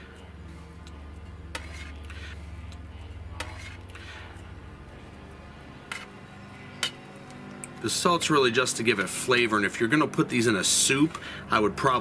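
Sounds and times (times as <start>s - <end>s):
knife scraping metal tray: 1.5s - 2.6s, 3.3s - 4.3s, 5.9s - 6.2s.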